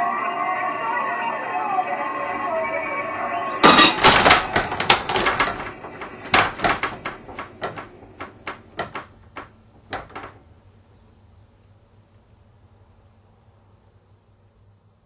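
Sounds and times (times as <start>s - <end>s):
wooden knocks and rattles: 3.6s - 10.5s.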